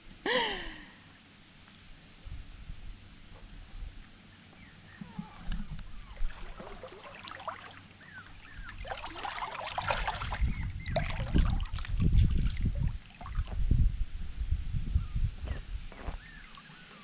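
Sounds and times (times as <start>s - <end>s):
water sloshing thuds: 5.0s - 7.8s, 8.6s - 13.6s
water splashing and lapping: 5.0s - 13.7s, 16.0s - 17.0s.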